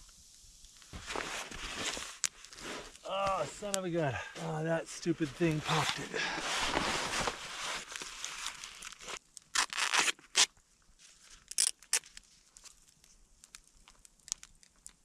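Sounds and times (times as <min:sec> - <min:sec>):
air hissing from sleeping pad: 0:00.0 - 0:08.0
sharp rustling and tearing: 0:00.9 - 0:03.8, 0:05.4 - 0:10.5, 0:11.1 - 0:15.0.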